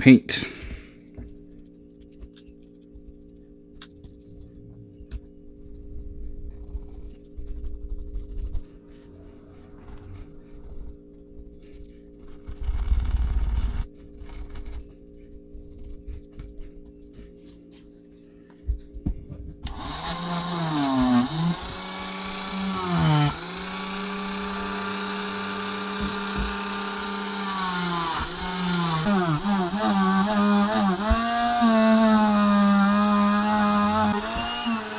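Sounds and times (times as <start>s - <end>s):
rotary tool whining: 5.7s - 16.7s, 19.6s - 34.9s.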